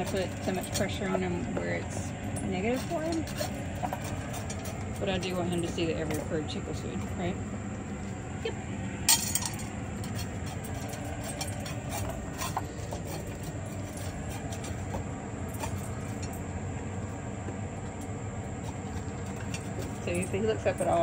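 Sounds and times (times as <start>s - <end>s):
dog eating from metal bowl: 0.0s - 21.0s
low background rumble: 0.0s - 21.0s
metallic clink on dog bowl: 9.1s - 10.2s.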